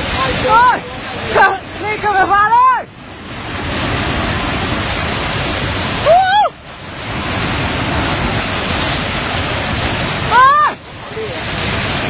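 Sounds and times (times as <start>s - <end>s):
flash flood of mud and water rushing: 0.0s - 12.0s
person shouting: 10.3s - 10.8s.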